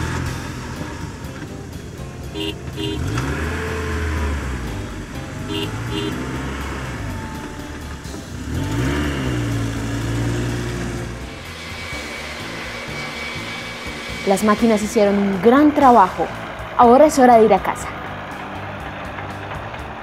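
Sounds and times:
car engine revving: 0.0s - 20.0s
car horn double beeps: 2.3s - 3.2s, 5.4s - 6.4s.

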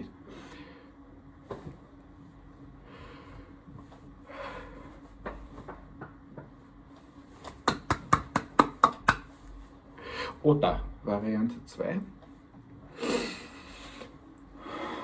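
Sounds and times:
hand clapping: 7.4s - 9.4s.

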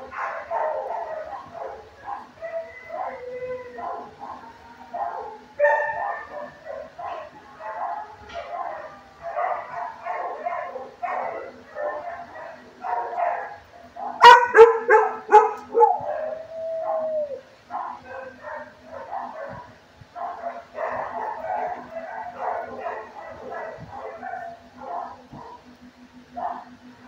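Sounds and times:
dogs barking: 0.0s - 25.7s, 26.3s - 26.8s.

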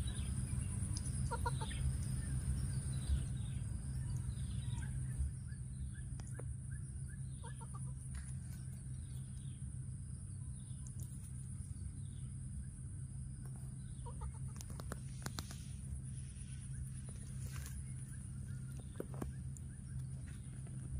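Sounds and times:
faint chirps and clicks: 0.1s - 9.7s, 10.4s - 12.4s, 13.4s - 15.8s, 16.7s - 20.9s
clucking calls: 0.8s - 3.3s, 6.0s - 8.8s, 13.5s - 15.7s.

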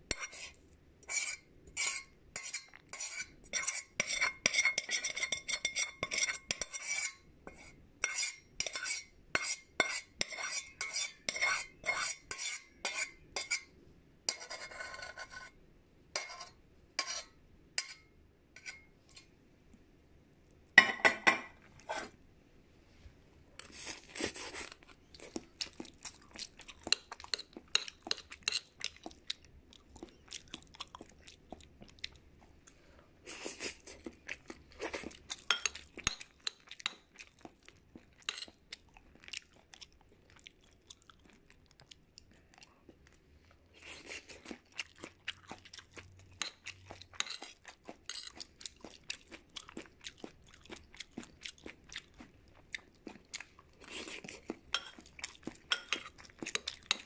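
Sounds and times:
utensil clinking against a bowl: 1.1s - 13.7s, 35.5s - 37.0s.

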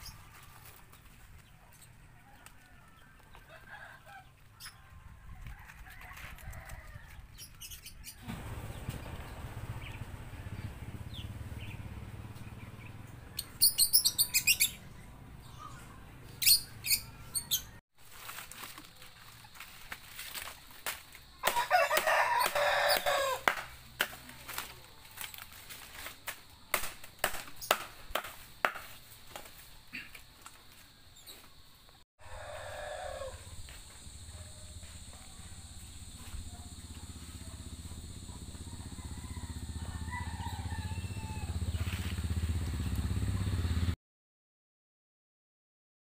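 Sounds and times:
rooster crowing: 2.0s - 7.3s, 21.4s - 23.5s, 32.2s - 43.8s
small engine running: 8.2s - 14.8s, 33.4s - 44.0s
palm fronds rustling and snapping: 18.0s - 30.9s, 41.7s - 43.3s.

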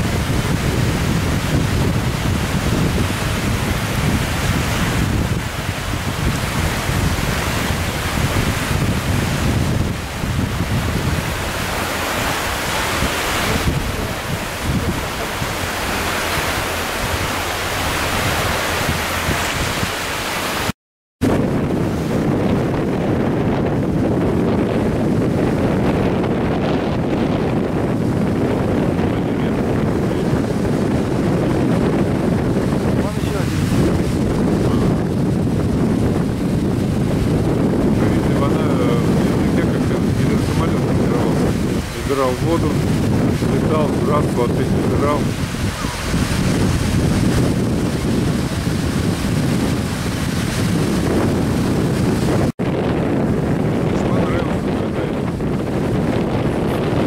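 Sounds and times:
small waves breaking: 0.0s - 20.8s, 38.0s - 52.6s
wind buffeting microphone: 0.0s - 57.0s.

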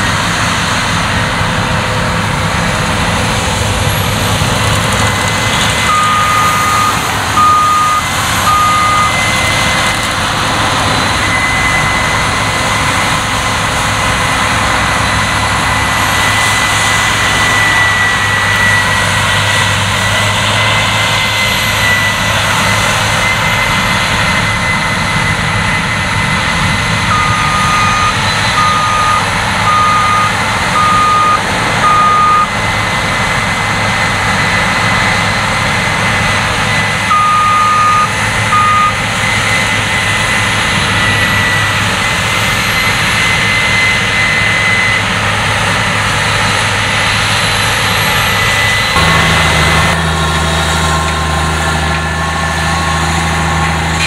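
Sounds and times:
combine harvester engine and threshing: 0.0s - 54.0s
short electronic beep: 5.8s - 9.6s, 11.0s - 13.3s, 27.1s - 32.6s, 37.1s - 39.0s.

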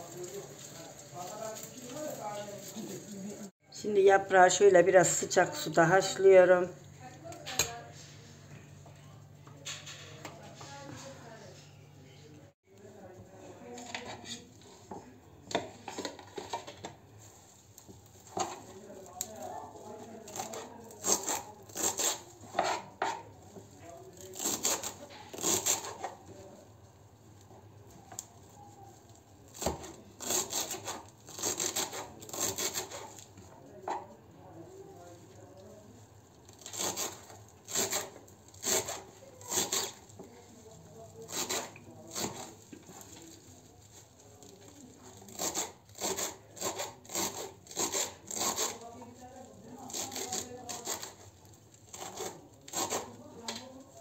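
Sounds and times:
knife chopping on cutting board: 20.5s - 23.2s.

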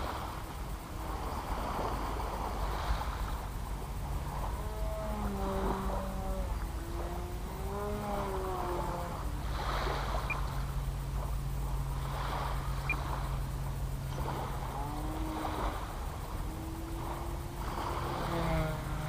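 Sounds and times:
propeller aircraft droning: 0.0s - 19.0s
wind rumbling on microphone: 0.0s - 19.0s.

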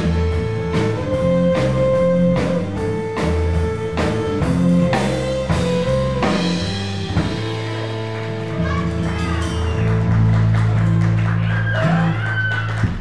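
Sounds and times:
violin long notes: 0.0s - 10.3s
bass: 0.0s - 13.0s
drums keeping a beat: 0.0s - 13.0s.

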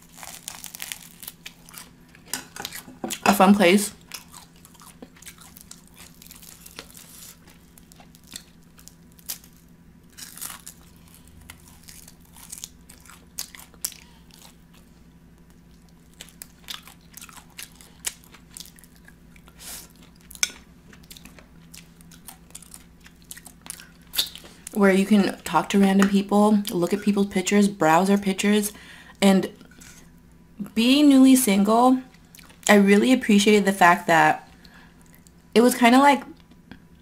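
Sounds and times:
person biting and chewing: 0.0s - 2.0s, 4.0s - 24.8s
faint low hum: 0.0s - 37.0s.

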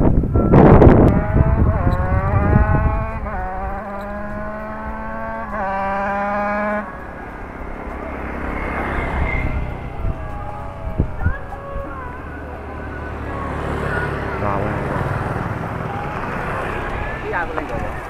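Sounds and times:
another motorcycle approaching: 0.0s - 18.0s
two-stroke motorcycle revving past: 0.5s - 18.0s.

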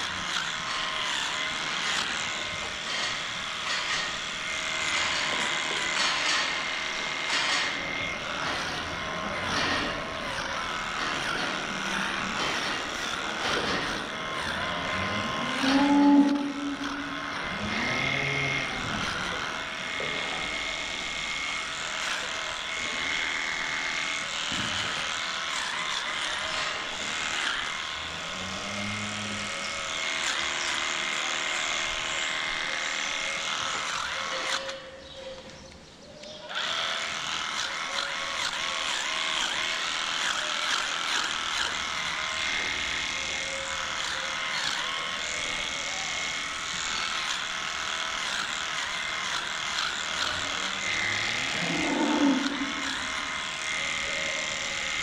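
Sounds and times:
barn machinery hum: 0.0s - 55.0s
electric clippers buzzing: 0.0s - 55.0s
cows mooing: 8.4s - 19.5s, 28.0s - 29.8s, 50.0s - 54.8s.

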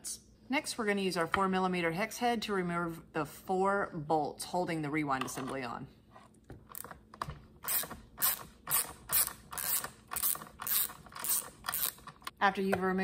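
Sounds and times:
ratcheting screwdriver clicking: 7.6s - 12.3s.

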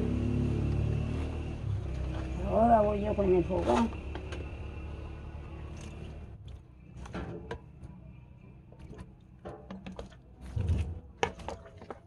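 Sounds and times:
objects knocking and clicking: 8.7s - 12.0s.

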